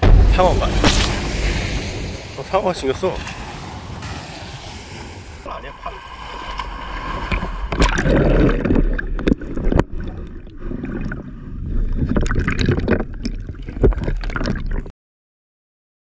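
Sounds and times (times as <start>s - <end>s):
sharp knocks: 0.0s - 2.0s
muffled water sloshing underwater: 0.0s - 14.9s.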